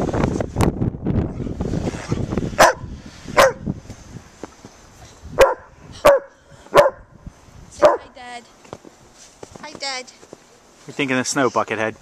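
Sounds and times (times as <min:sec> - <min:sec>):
dog barking: 0:02.6 - 0:03.6, 0:05.4 - 0:07.1, 0:07.8 - 0:08.2.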